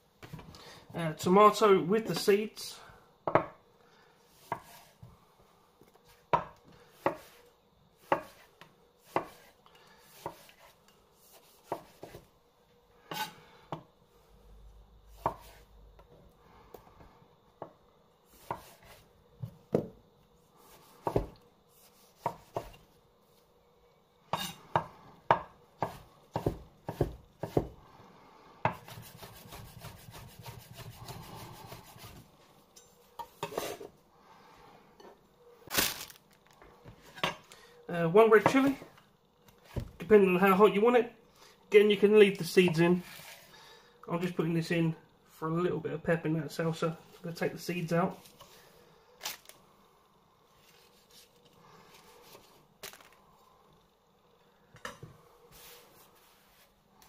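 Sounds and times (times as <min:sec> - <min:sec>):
knife chopping on a chopping board: 0:04.4 - 0:04.9, 0:06.3 - 0:07.4, 0:08.0 - 0:09.5, 0:10.1 - 0:10.7, 0:11.4 - 0:12.2, 0:15.2 - 0:15.6, 0:18.4 - 0:19.9, 0:20.8 - 0:22.8, 0:24.3 - 0:27.8, 0:28.6 - 0:32.2.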